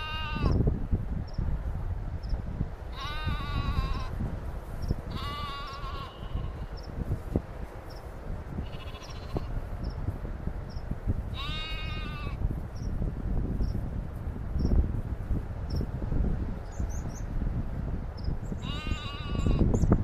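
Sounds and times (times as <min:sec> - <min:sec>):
sheep bleating: 0:00.0 - 0:00.6, 0:02.9 - 0:04.2, 0:05.1 - 0:06.8, 0:08.6 - 0:09.6, 0:11.3 - 0:12.4, 0:18.6 - 0:19.7
low wind rumble: 0:00.0 - 0:20.0.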